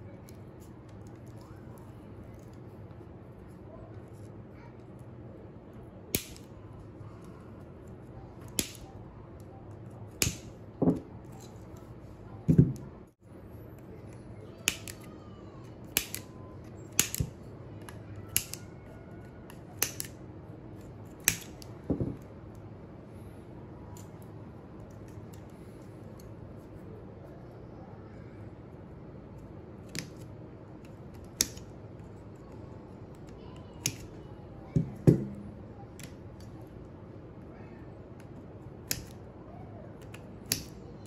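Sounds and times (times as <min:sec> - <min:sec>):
wire snips clipping metal strip: 0:08.5 - 0:08.9, 0:15.9 - 0:16.3, 0:17.0 - 0:17.3, 0:18.3 - 0:18.6, 0:21.2 - 0:21.7, 0:38.8 - 0:39.2, 0:40.0 - 0:40.8.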